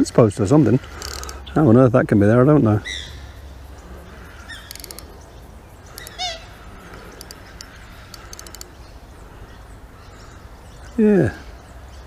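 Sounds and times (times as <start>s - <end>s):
fishing reel ticking: 0.8s - 1.6s, 4.2s - 5.2s, 5.8s - 8.8s.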